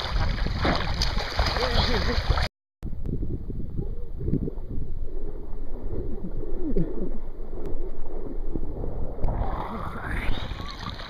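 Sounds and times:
hands paddling water: 0:00.0 - 0:02.5
water sloshing and gurgling: 0:00.0 - 0:02.5, 0:03.7 - 0:11.0.

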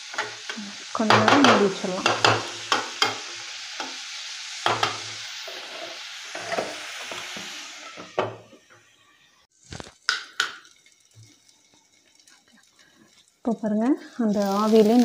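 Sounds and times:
cabbage sizzling in oil: 0:00.0 - 0:15.0
ladle knocking on pan: 0:01.1 - 0:03.2.

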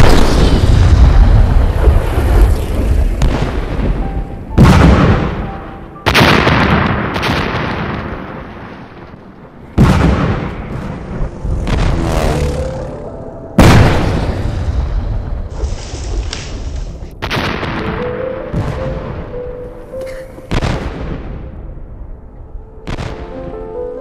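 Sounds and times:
artillery shell explosions: 0:00.0 - 0:04.0, 0:04.6 - 0:19.3.

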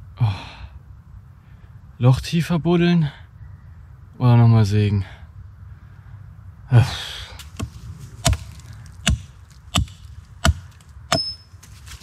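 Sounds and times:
hatchet striking wooden log: 0:07.4 - 0:11.4.

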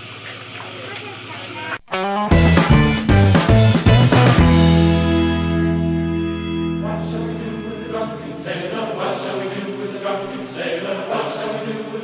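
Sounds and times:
held music chord: 0:02.3 - 0:11.7
choir singing chant-like chords: 0:05.8 - 0:12.0.

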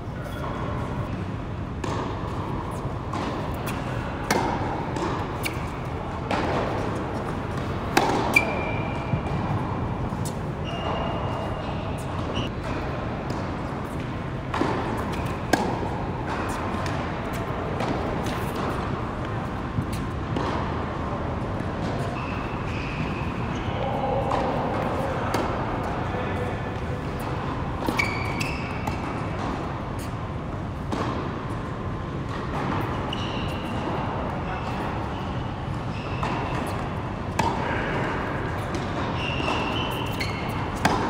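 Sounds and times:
shoes squeaking on court: 0:00.2 - 0:01.2, 0:01.8 - 0:41.0
tennis ball struck with racket: 0:01.8 - 0:11.0, 0:12.0 - 0:20.8, 0:24.2 - 0:25.6, 0:30.8 - 0:31.6, 0:36.2 - 0:41.0.

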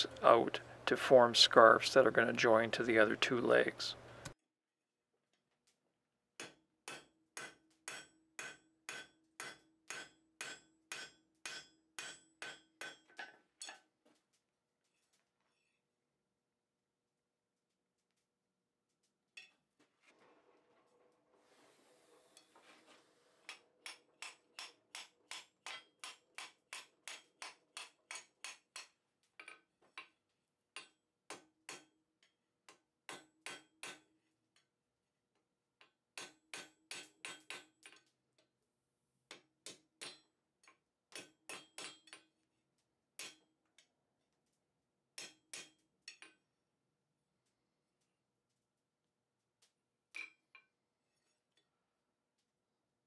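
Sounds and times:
hammer striking steel on anvil: 0:06.4 - 0:13.9, 0:23.5 - 0:29.0, 0:30.8 - 0:32.0, 0:33.1 - 0:34.1, 0:36.2 - 0:38.0, 0:39.7 - 0:40.3, 0:41.1 - 0:42.3, 0:43.2 - 0:43.4, 0:45.2 - 0:46.3.

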